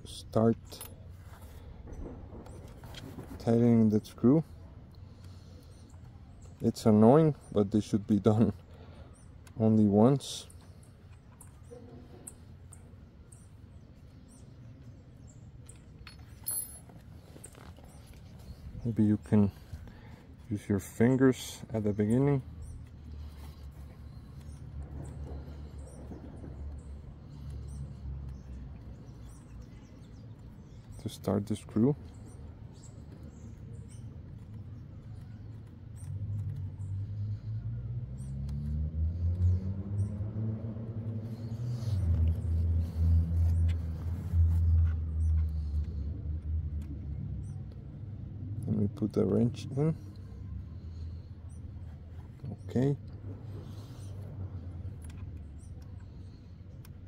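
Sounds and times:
small ticks: 0:32.0 - 0:40.3
low rumble: 0:39.1 - 0:48.8.

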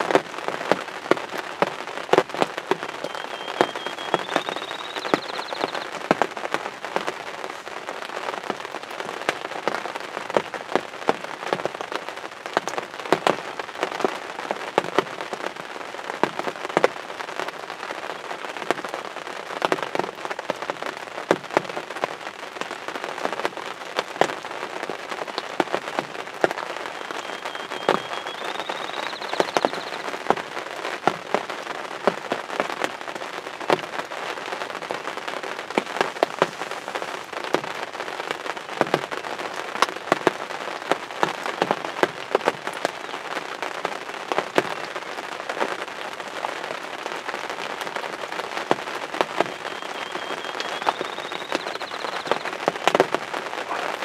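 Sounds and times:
raindrops hitting close: 0:00.0 - 0:54.0
steady rain: 0:00.0 - 0:54.0
faint high whistle: 0:03.0 - 0:05.8, 0:27.0 - 0:30.0, 0:49.5 - 0:52.4.

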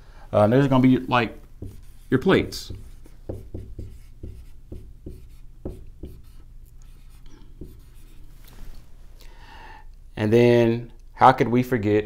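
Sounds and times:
marker writing on a whiteboard: 0:00.7 - 0:08.4.

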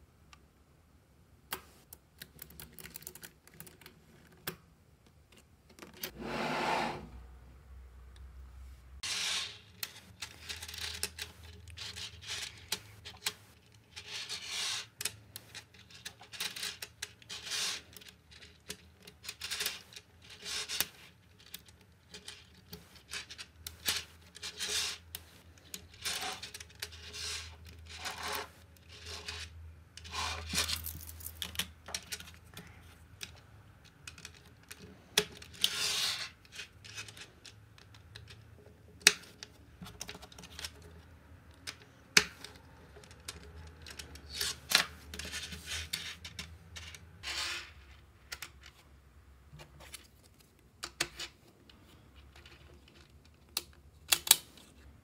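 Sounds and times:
magnetic balls scraping: 0:06.1 - 0:07.2, 0:09.0 - 0:18.3, 0:22.4 - 0:31.4.

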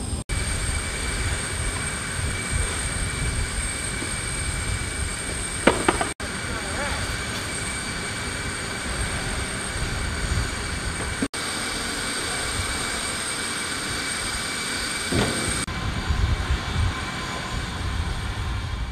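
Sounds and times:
aircraft high-pitched whine: 0:00.0 - 0:18.9
heavy clunks: 0:05.6 - 0:06.2.

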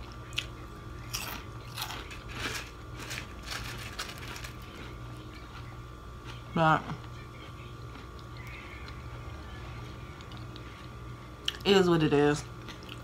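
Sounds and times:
person crunching potato chips: 0:00.0 - 0:06.4.

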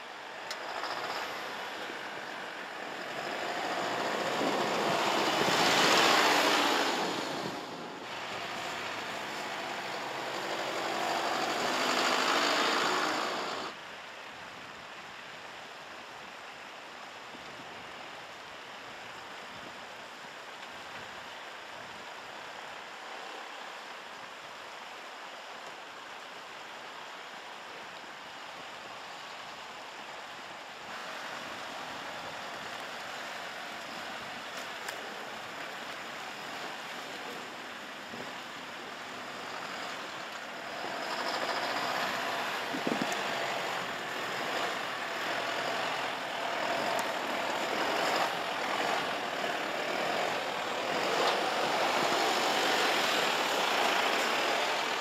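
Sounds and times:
truck driving over snow and rocks: 0:00.4 - 0:13.8, 0:30.9 - 0:55.0.

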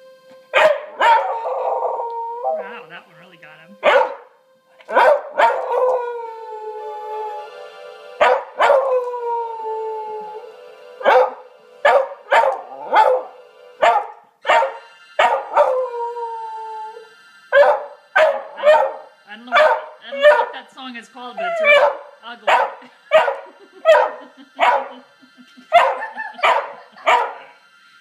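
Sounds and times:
electric keyboard: 0:00.0 - 0:27.9
dog howling: 0:00.6 - 0:02.7, 0:03.8 - 0:07.6, 0:08.2 - 0:20.5, 0:21.4 - 0:25.0.

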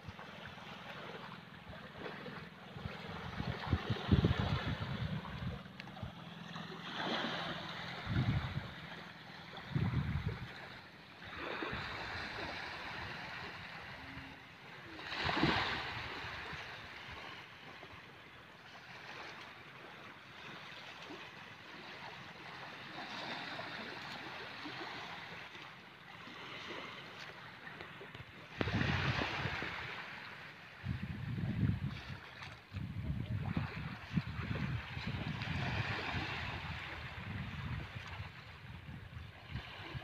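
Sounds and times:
waves washing on shore: 0:00.0 - 0:17.9, 0:18.6 - 0:31.0, 0:31.8 - 0:38.8, 0:39.4 - 0:40.0
wind gusting on microphone: 0:03.1 - 0:05.7, 0:07.9 - 0:08.8, 0:09.7 - 0:10.6, 0:28.6 - 0:29.8, 0:30.8 - 0:40.0.

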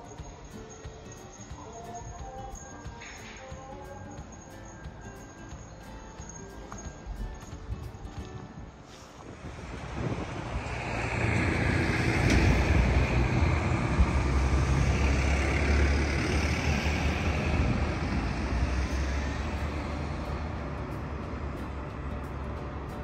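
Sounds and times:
vehicle passing by: 0:09.2 - 0:23.0.

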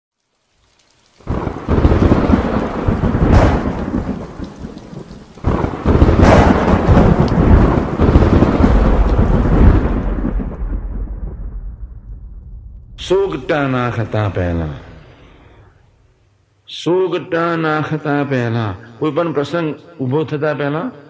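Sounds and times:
rain: 0:00.1 - 0:18.6
thunder rumbling: 0:00.7 - 0:16.0.

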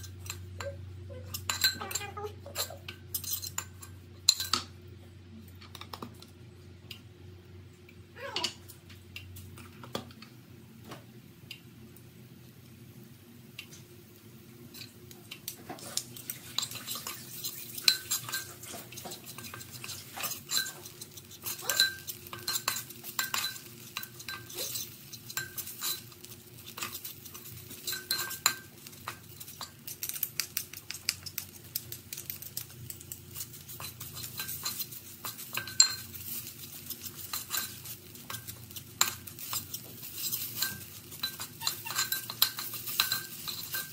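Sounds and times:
metal spatula scraping a pot: 0:15.7 - 0:29.7, 0:33.4 - 0:43.9.

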